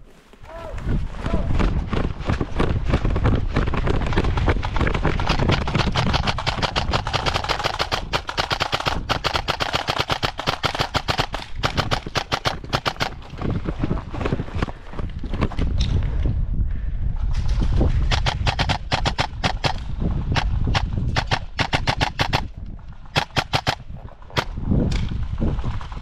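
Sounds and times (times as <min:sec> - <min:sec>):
airsoft rifles rapid firing: 0:03.6 - 0:13.3, 0:18.1 - 0:22.5, 0:23.1 - 0:24.5.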